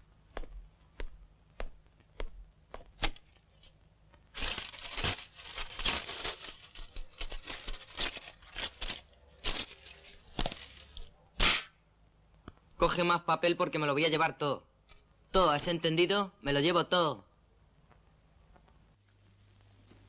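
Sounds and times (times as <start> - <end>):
foil crinkling and tearing: 4.3 - 11.1.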